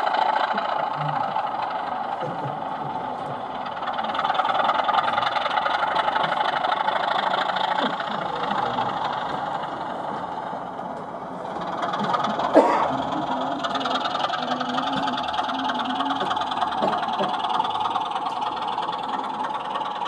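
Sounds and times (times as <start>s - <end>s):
model locomotive running clatter: 0.0s - 20.0s
faint crowd chatter: 5.3s - 18.0s.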